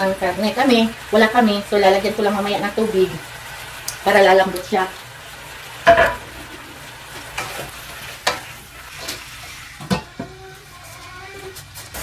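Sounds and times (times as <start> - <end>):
beef sizzling in hot oil: 0.0 - 12.0
knocks and scrapes in a wok: 7.2 - 12.0.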